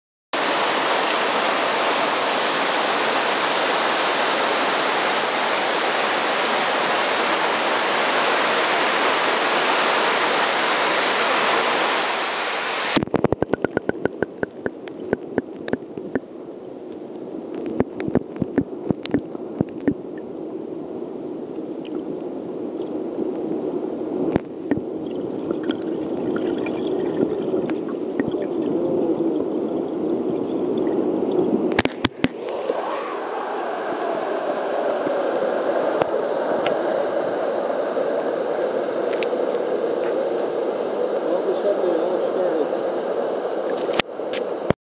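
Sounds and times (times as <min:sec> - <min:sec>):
river rushing over gravel: 0:00.4 - 0:13.0, 0:24.5 - 0:44.6
underwater clicks and knocks: 0:13.0 - 0:16.2, 0:17.6 - 0:20.0
muffled underwater churning: 0:24.1 - 0:39.4.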